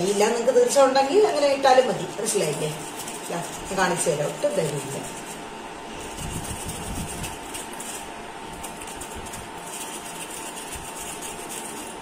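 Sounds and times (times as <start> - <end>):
flour sifting rustle: 2.2 - 12.0.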